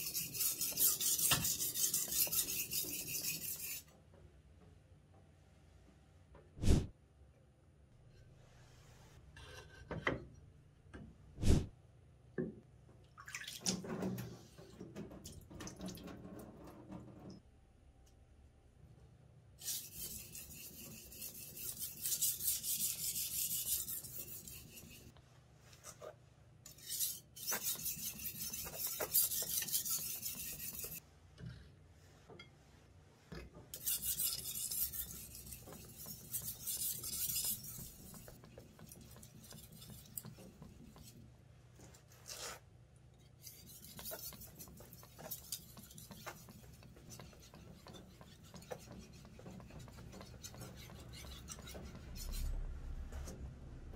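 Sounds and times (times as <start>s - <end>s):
knife scraping on whetstone: 0.0s - 3.8s, 19.6s - 25.1s, 26.7s - 31.0s, 33.8s - 41.2s, 42.1s - 42.6s, 43.4s - 52.6s.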